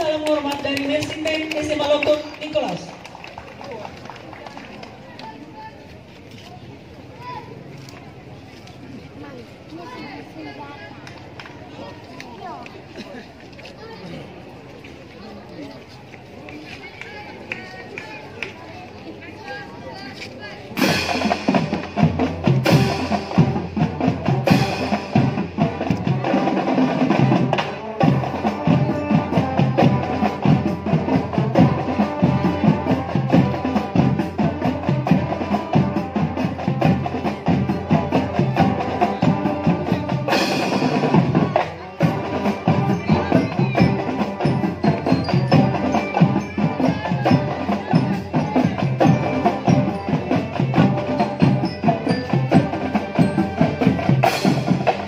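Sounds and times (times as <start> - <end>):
fast percussion beat: 0.0 - 3.0, 20.8 - 55.0
marching band playing: 0.0 - 4.4, 19.3 - 55.0.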